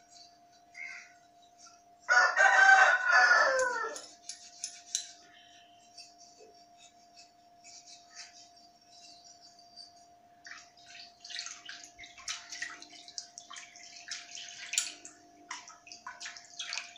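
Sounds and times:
faint steady hum: 0.0 - 16.9
rooster crowing: 2.1 - 4.1
brass items clinking in water: 9.6 - 16.9.

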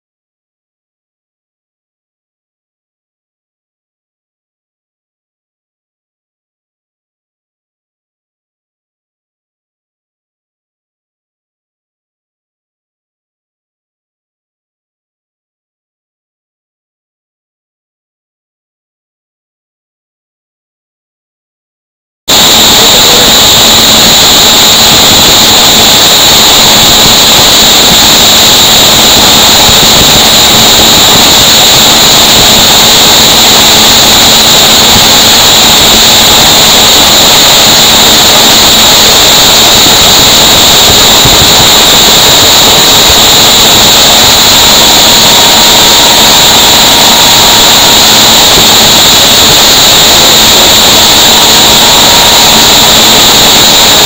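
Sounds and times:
conveyor machinery running: 22.3 - 52.6.

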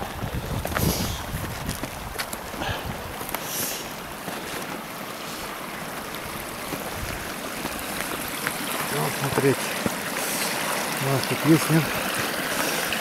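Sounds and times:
creek water running: 0.0 - 13.0
footsteps crunching in snow: 0.6 - 10.0.

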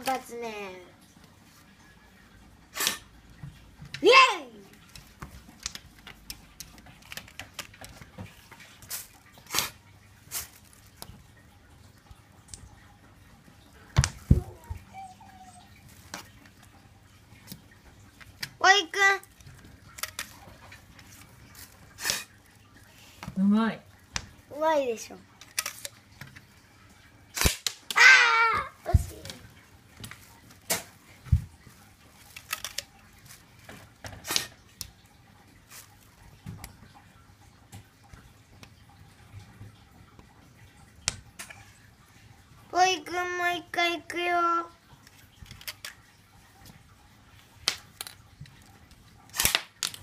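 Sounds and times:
thumps on glass door: 14.0 - 14.8.

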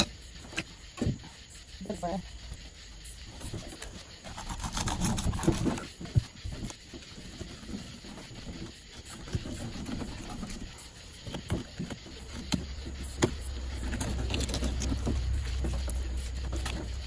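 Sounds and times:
knife cutting and scraping fish: 3.7 - 17.0
low steady rumble: 11.9 - 17.0.

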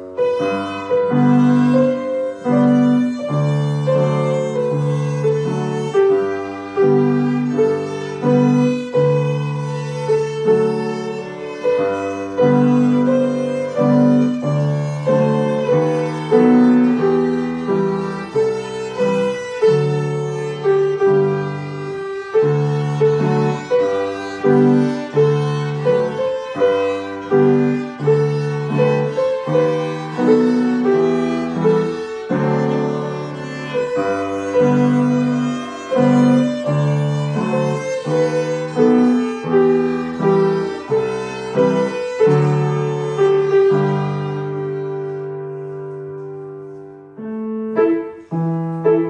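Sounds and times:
grand piano: 0.0 - 49.0
violin: 0.0 - 49.0.

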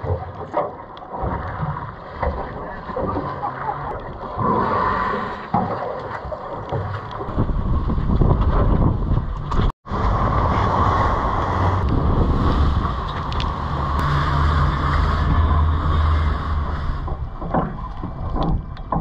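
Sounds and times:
sea water around boat: 0.0 - 19.0
wind buffeting microphone: 7.2 - 19.0
low engine drone: 9.8 - 19.0.

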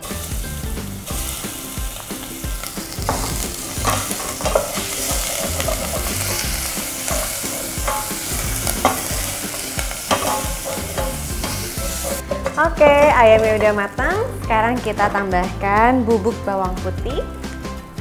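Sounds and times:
chicken sizzling in oil: 0.0 - 13.7
wooden spatula scraping pot: 3.0 - 13.8.

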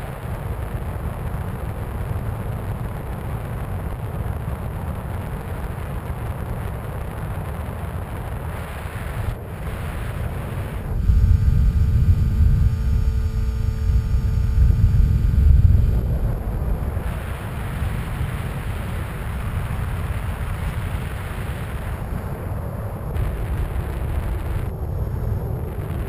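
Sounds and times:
wind rushing over camera: 0.0 - 26.0
electric motor and propeller whine: 8.1 - 26.0.

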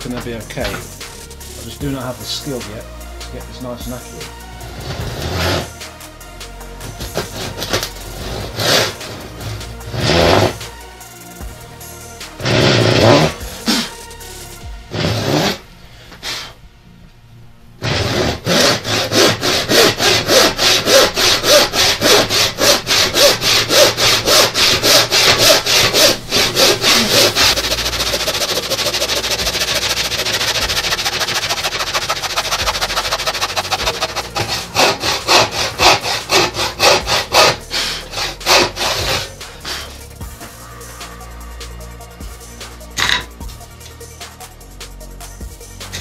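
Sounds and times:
hand saw cutting wood: 0.0 - 2.8, 3.6 - 5.9, 6.8 - 10.8, 12.4 - 14.0, 14.9 - 15.6, 17.8 - 40.2, 43.0 - 43.3.

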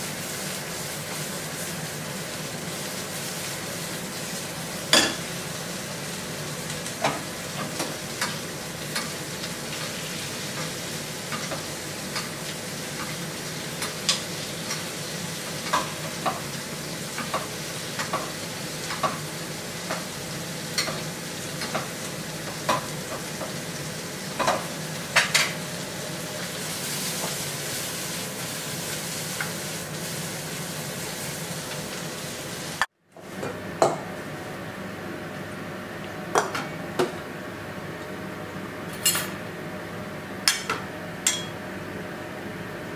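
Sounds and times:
fish sizzling in a frying pan: 0.0 - 32.9
pan and utensils clinking: 38.9 - 39.4, 40.5 - 41.6.

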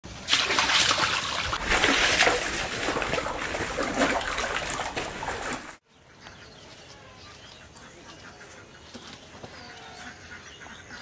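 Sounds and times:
fish splashing in water: 0.1 - 5.8.

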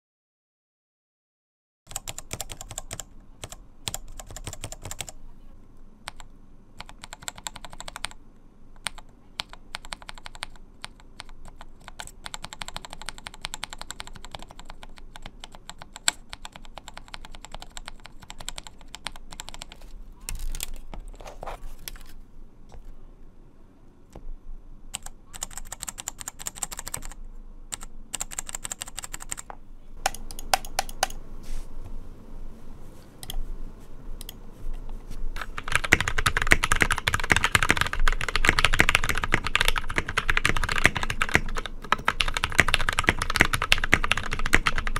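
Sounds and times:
mechanical keyboard switch clicks: 30.0 - 31.2.

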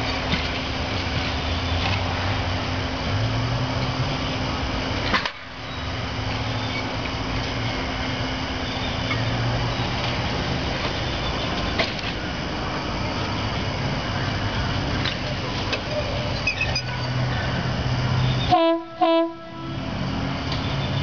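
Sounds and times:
streetcar sharp click: 0.0 - 2.2, 5.0 - 5.8, 10.0 - 12.3, 14.9 - 17.2, 20.4 - 21.0
streetcar running with low hum: 0.0 - 21.0.

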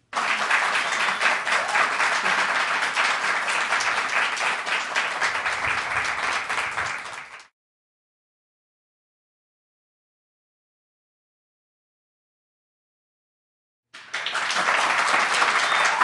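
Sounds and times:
audience applauding: 0.0 - 7.5, 14.0 - 16.0.

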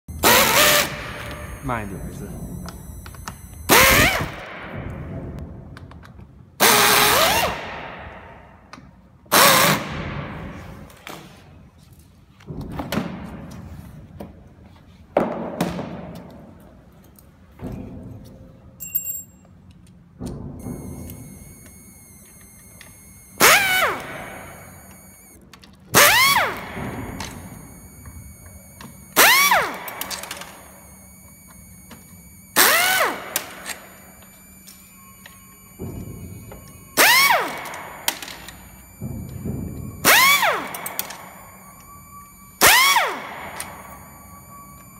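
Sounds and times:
cordless drill whining: 0.1 - 4.4, 20.6 - 25.4, 26.0 - 44.9.

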